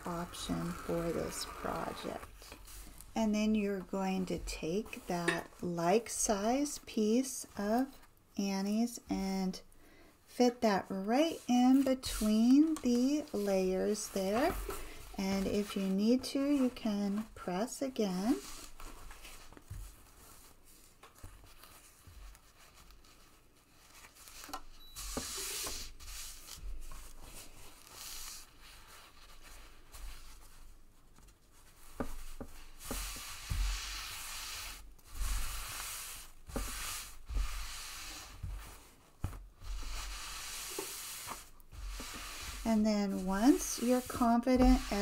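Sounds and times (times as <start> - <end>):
fabric and foam rustling: 0.0 - 9.7, 10.3 - 45.0
soft bumps: 43.2 - 45.0.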